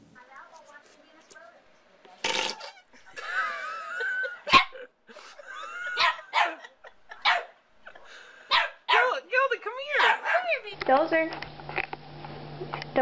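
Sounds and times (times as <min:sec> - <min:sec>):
dog whining cry: 0:02.5 - 0:03.0
dog barking sharply: 0:04.5 - 0:04.8, 0:06.0 - 0:06.6, 0:07.2 - 0:07.6, 0:08.5 - 0:09.2, 0:10.0 - 0:10.6.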